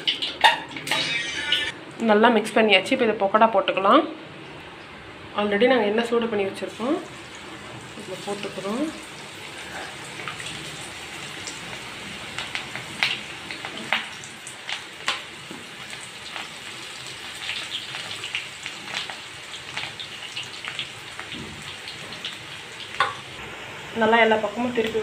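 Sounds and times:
fritters sizzling in hot oil: 7.0 - 25.0
oil crackling and popping: 11.2 - 23.3.

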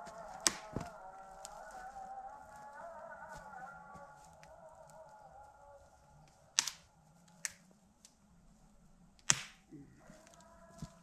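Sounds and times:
sharp cracks or knocks: 0.4 - 0.9, 9.2 - 9.7.

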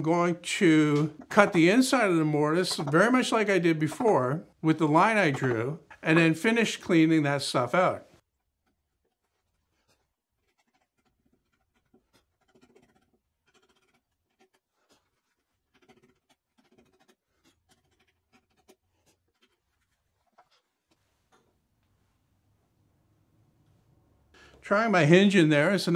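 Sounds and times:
chisel scraping wood: 0.8 - 6.3, 8.4 - 20.6.

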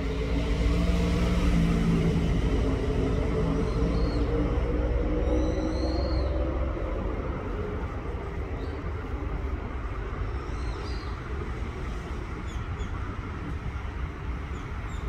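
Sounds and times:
low rumble: 0.0 - 10.2.

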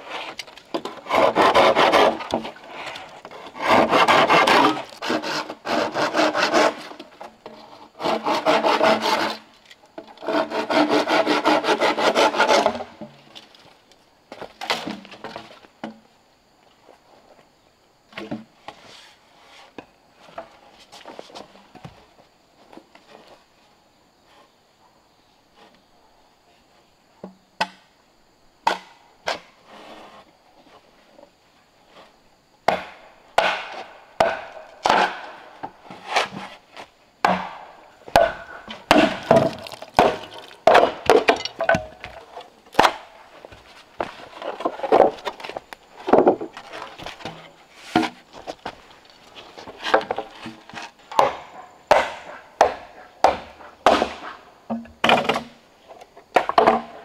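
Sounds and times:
chopping blows into wood: 32.7 - 35.3.

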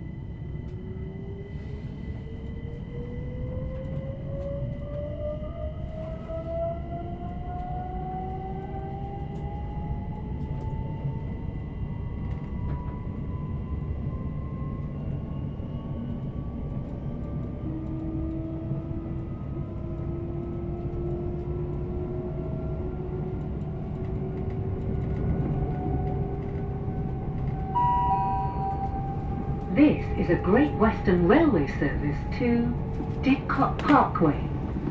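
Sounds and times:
wheels rumbling on rail: 0.0 - 34.9
electronic chime tone: 27.8 - 29.3.

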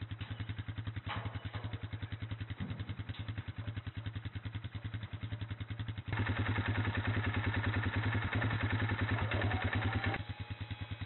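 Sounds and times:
brief rattle: 0.0 - 4.0
atv engine idling: 0.0 - 11.0.

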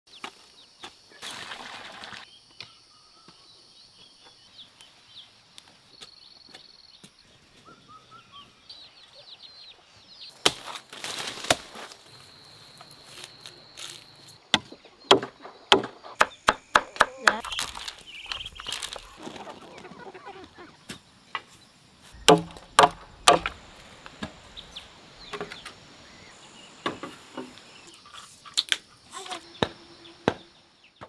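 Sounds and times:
sharp knocks: 14.5 - 17.4, 22.2 - 24.4
bird or chick chirps: 14.7 - 20.9.

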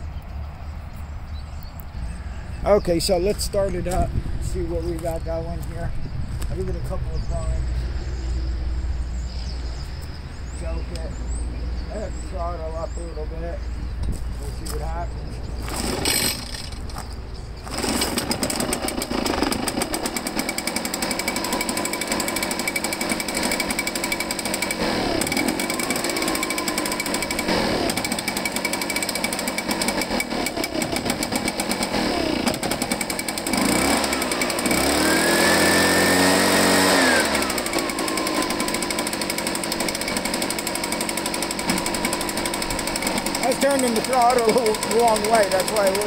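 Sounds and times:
leaf blower engine: 15.6 - 46.0.

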